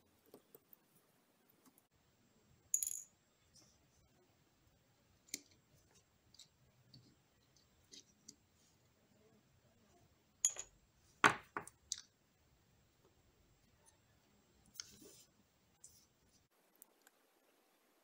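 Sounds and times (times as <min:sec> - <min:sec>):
small metal parts clicking and clinking: 0:10.4 - 0:10.7.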